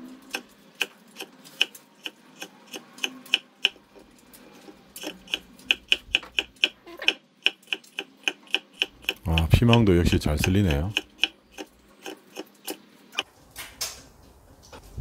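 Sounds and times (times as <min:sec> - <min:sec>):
knife tapping on wooden board: 0:05.3 - 0:12.2.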